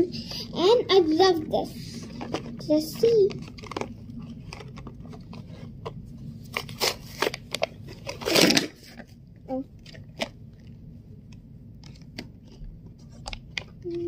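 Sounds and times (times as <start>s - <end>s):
plastic packaging crackling: 2.1s - 9.1s
cardboard tearing: 6.5s - 9.0s.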